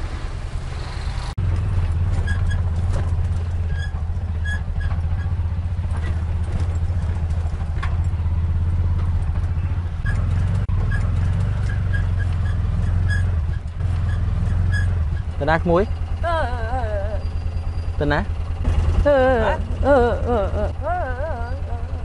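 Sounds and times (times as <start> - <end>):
rickshaw engine droning: 0.0 - 22.0.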